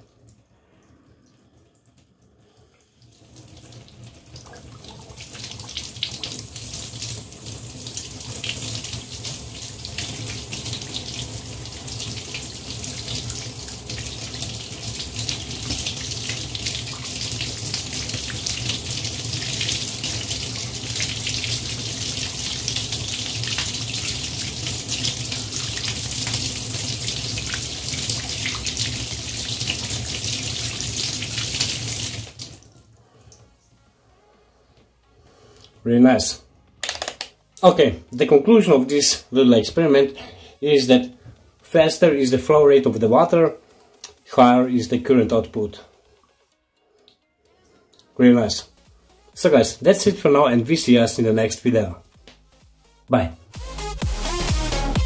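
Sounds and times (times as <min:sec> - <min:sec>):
tap water splashing: 0:11.9 - 0:32.6.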